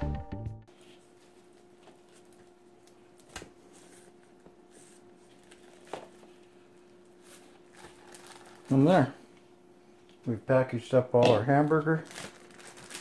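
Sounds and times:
background music: 0:00.0 - 0:00.7
faint steady hum: 0:00.6 - 0:13.0
plastic bag handling: 0:05.2 - 0:09.1, 0:11.2 - 0:13.0.

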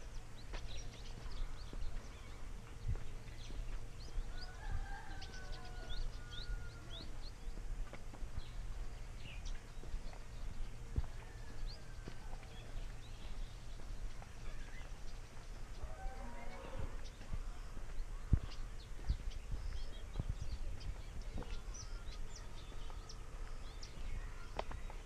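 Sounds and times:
birds chirping: 0:00.0 - 0:25.0
footsteps on dirt path: 0:00.0 - 0:25.0.

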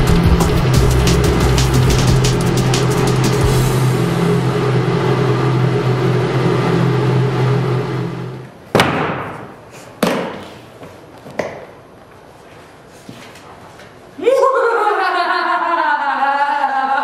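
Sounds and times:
steady low hum: 0:00.0 - 0:08.7.

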